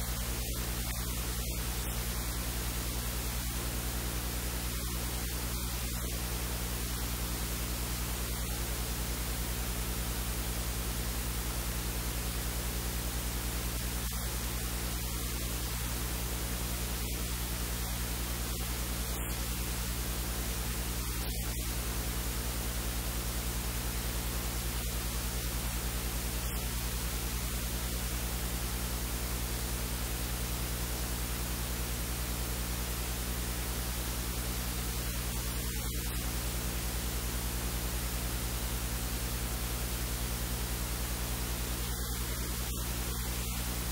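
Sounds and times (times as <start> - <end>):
loud electrical hiss: 0.0 - 43.9
mains hum buzz: 0.0 - 43.9.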